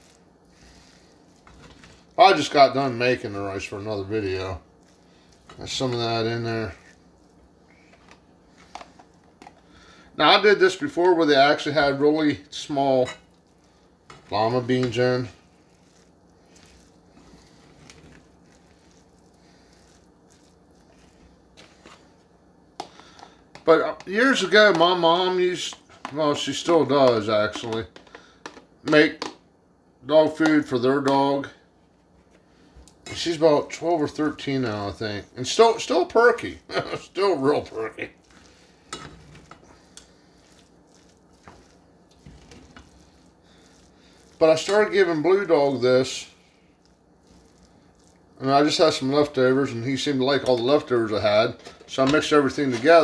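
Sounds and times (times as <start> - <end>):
spoon scraping and squishing food: 0.0 - 28.6, 38.1 - 50.9, 51.5 - 53.0
low steady hum: 0.0 - 53.0
spoon stirring in metal saucepan: 13.0 - 22.1, 38.2 - 45.0.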